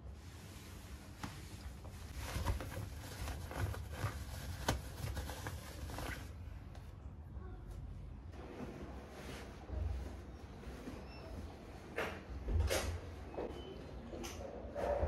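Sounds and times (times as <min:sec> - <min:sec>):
bed sheet fabric rustling: 0:00.1 - 0:06.6, 0:08.4 - 0:11.9.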